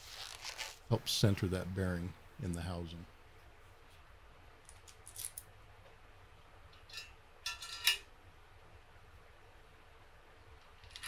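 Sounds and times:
metal parts clinking: 0:04.7 - 0:05.4, 0:06.9 - 0:08.1, 0:10.8 - 0:11.0.

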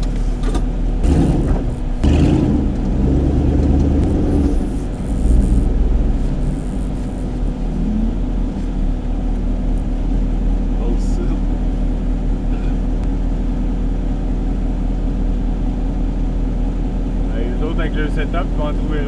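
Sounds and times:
vehicle knocks and rattles: 0:00.0 - 0:04.5
off-road vehicle engine rumble: 0:00.0 - 0:19.0.

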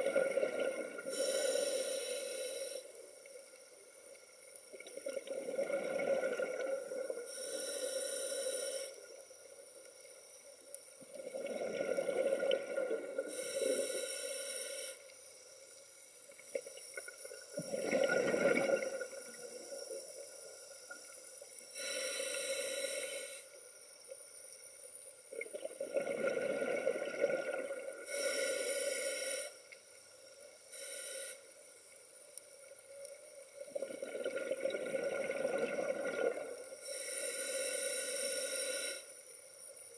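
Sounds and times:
regulator inhale hiss: 0:01.0 - 0:03.5, 0:07.1 - 0:10.3, 0:13.2 - 0:15.8, 0:19.3 - 0:24.0, 0:28.0 - 0:32.0, 0:36.7 - 0:39.7
bubbling exhale underwater: 0:17.5 - 0:19.2, 0:25.5 - 0:28.1, 0:33.7 - 0:36.6.

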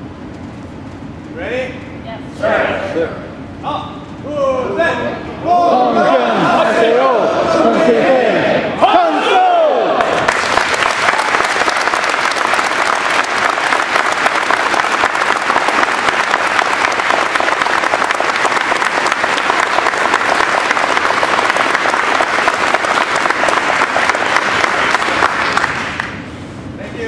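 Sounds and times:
crowd applauding: 0:09.9 - 0:26.3.

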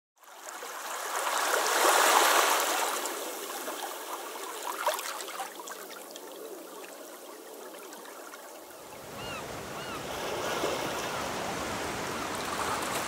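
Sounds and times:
ocean wave washing up beach: 0:08.4 - 0:13.0.

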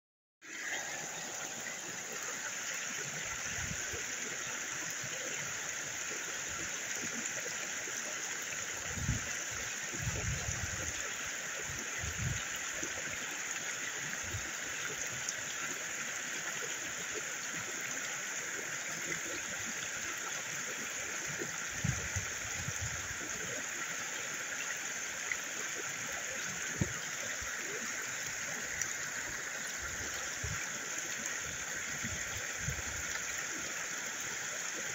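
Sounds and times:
creek water running: 0:00.4 - 0:34.9.

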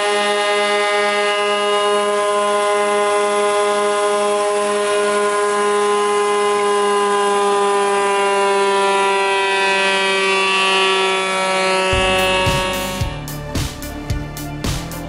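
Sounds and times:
planer machine humming: 0:00.0 - 0:15.0.

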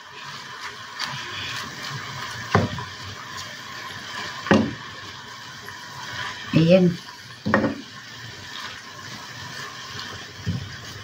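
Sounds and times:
vegetables sizzling in a pan: 0:00.0 - 0:11.0
leaves rustling: 0:00.1 - 0:04.3
wooden spoon knocking on pan: 0:02.5 - 0:02.8, 0:04.5 - 0:04.8, 0:07.4 - 0:07.8.

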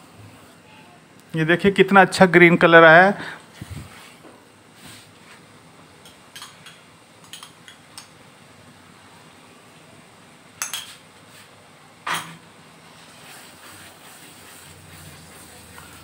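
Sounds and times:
metal spoon clinking on cookware: 0:06.0 - 0:08.1, 0:10.6 - 0:11.0.

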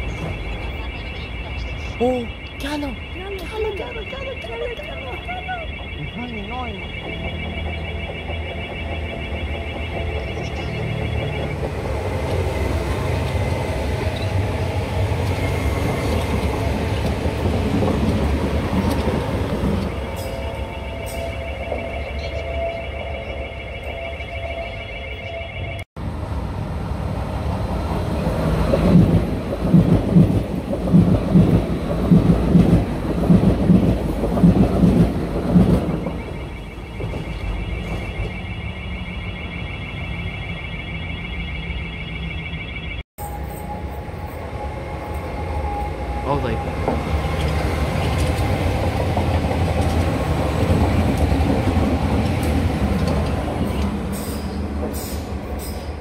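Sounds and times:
rhythmic train wheel knocks: 0:00.0 - 0:23.1, 0:27.9 - 0:38.6, 0:46.6 - 0:55.6
high pulsing electronic alarm tone: 0:00.0 - 0:25.9, 0:34.8 - 0:54.1
train rumbling past: 0:00.0 - 0:56.0.

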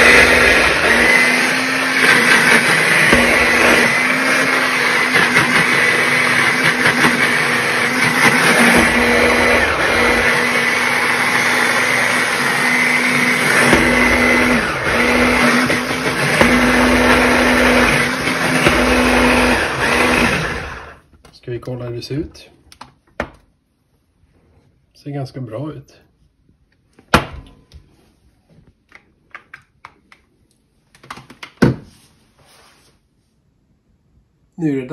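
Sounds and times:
hand blender motor whining: 0:00.0 - 0:21.0.

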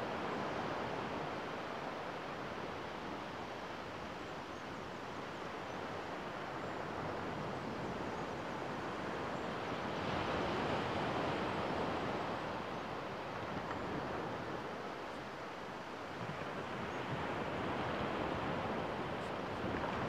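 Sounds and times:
waves washing onto beach: 0:08.5 - 0:20.0.

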